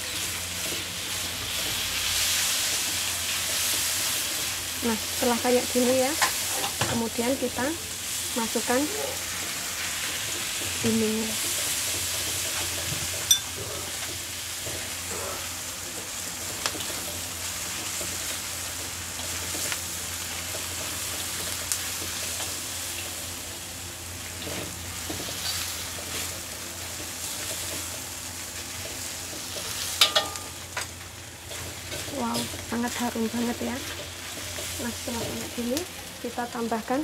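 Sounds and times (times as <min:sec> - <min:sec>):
food sizzling in hot oil: 0:00.0 - 0:37.0
spatula knocking against wok: 0:30.0 - 0:30.6.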